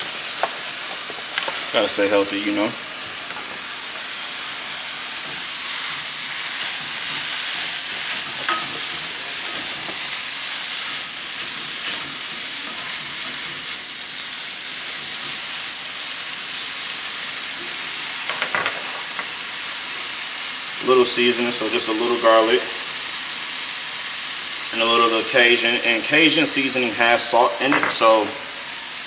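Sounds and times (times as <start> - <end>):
spinach sizzling in frying pan: 0.0 - 29.0.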